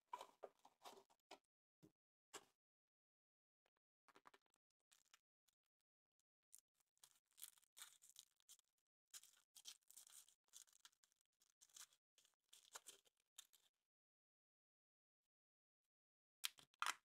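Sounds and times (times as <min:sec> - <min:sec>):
foil wrapper crinkling: 0:07.0 - 0:08.5.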